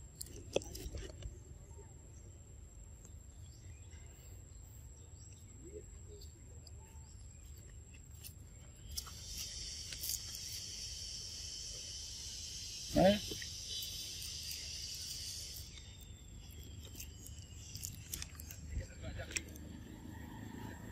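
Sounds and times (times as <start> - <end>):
faint high insect tone: 0.0 - 20.9
chorus of buzzing insects: 8.2 - 20.9.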